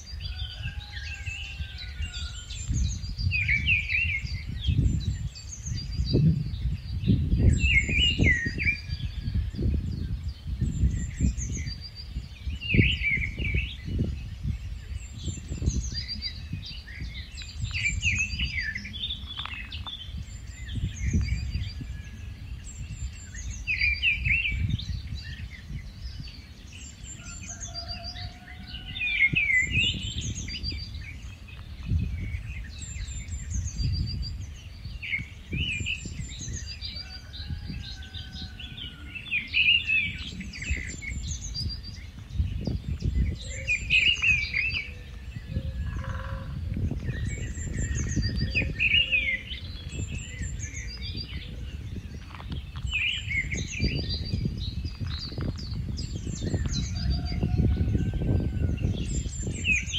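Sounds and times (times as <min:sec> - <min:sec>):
bird singing: 0:00.0 - 0:59.9
wind rumble on microphone: 0:00.0 - 0:59.9.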